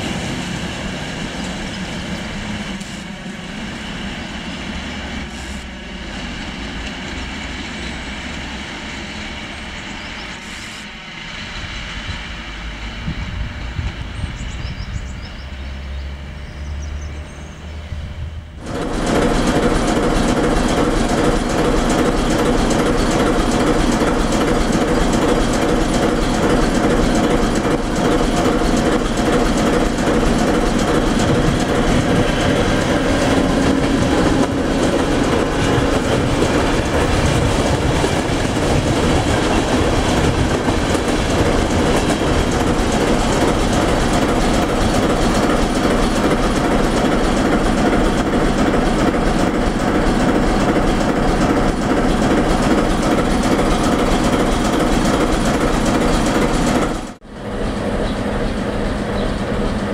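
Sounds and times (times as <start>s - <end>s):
diesel locomotive engine drone: 0.0s - 59.9s
train wheels clattering on rails: 18.6s - 59.9s.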